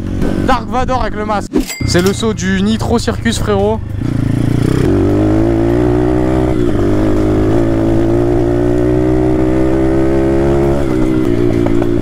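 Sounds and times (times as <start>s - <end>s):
dirt bike engine running hard: 0.0s - 1.2s, 3.7s - 12.0s.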